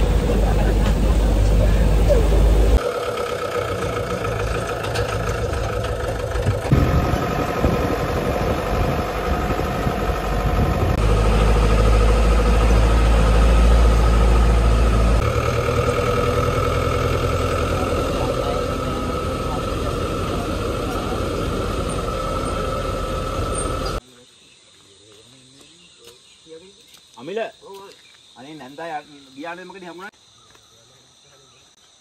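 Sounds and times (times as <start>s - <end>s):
truck engine running: 0.0s - 24.0s
deep low rumble: 4.4s - 16.0s.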